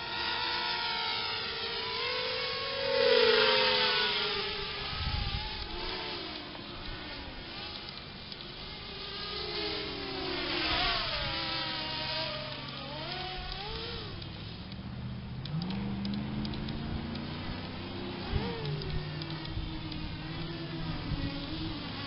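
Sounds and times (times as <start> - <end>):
quadcopter motors buzzing: 0.0 - 22.0.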